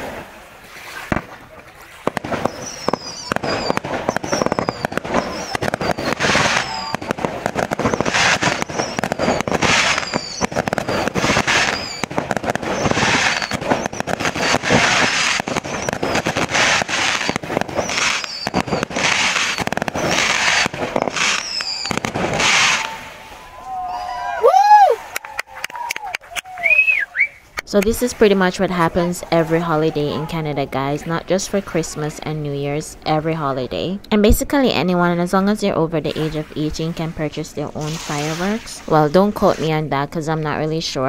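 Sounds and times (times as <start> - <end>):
fireworks crackling and banging: 1.0 - 23.9, 35.6 - 41.0
fireworks falling whistles: 2.0 - 23.5, 26.6 - 27.5.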